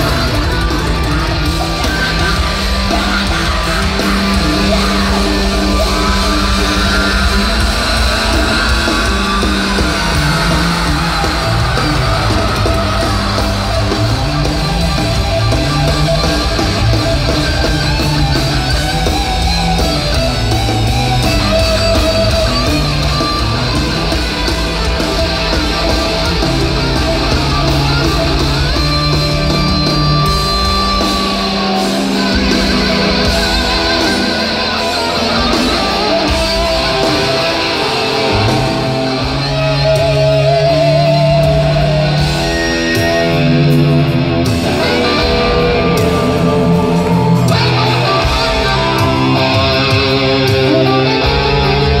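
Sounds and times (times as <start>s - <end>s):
electric guitar lead lines: 0.0s - 52.0s
live hard rock band: 0.0s - 52.0s.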